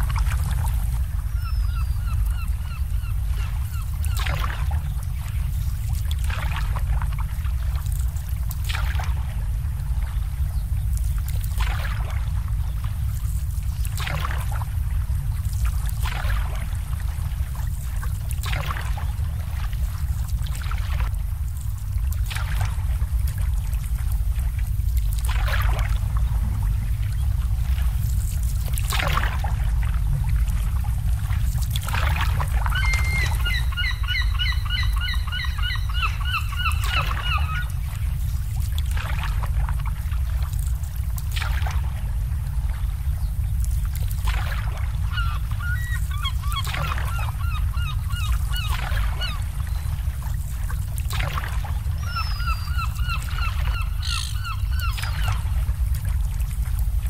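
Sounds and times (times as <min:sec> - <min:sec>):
low rumble: 0:00.0 - 0:46.3
water lapping against boat hulls: 0:00.0 - 0:57.0
bird honking calls: 0:32.7 - 0:37.7.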